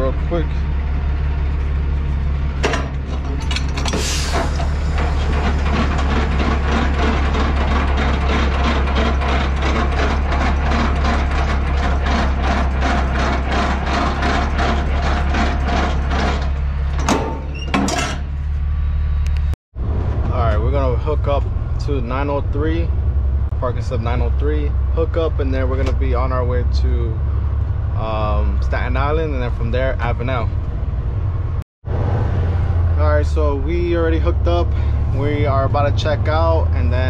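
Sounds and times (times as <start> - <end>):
diesel engine idling: 0.0 - 17.6, 32.7 - 37.0.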